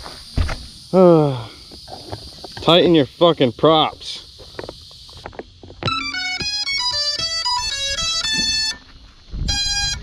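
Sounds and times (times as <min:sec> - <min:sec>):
rapid plucked melody: 0:05.8 - 0:08.8.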